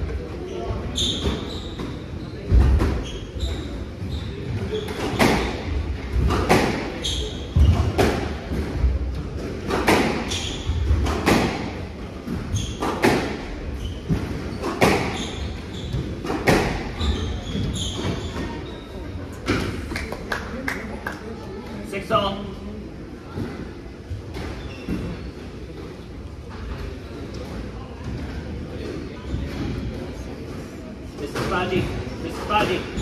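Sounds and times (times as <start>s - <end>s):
shoes squeaking on wooden floor: 0.4s - 6.3s, 10.1s - 11.0s, 12.3s - 19.1s, 24.4s - 25.6s
squash ball cracking off racquets: 14.1s - 15.2s.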